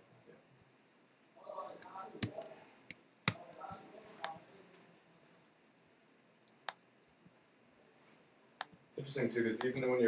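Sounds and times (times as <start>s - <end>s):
computer clicks: 1.6s - 4.4s.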